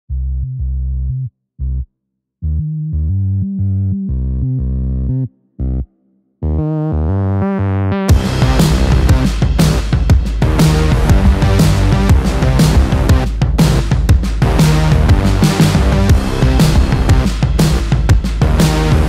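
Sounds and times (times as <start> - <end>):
synthesizer low held notes: 0.1 - 19.0
distorted band with hard drums: 8.1 - 19.0.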